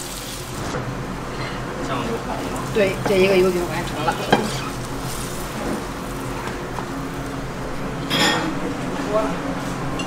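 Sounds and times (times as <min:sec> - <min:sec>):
pancake sizzling in oiled pan: 0:00.0 - 0:00.8, 0:03.8 - 0:07.3.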